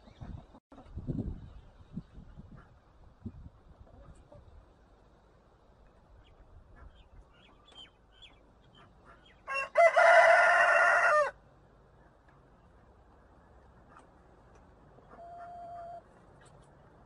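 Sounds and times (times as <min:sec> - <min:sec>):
rooster crowing: 0:09.5 - 0:11.4.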